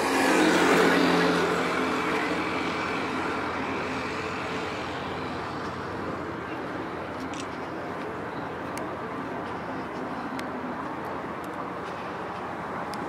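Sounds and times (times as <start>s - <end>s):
vehicle passing by: 0.0s - 6.8s
street noise: 0.0s - 13.0s.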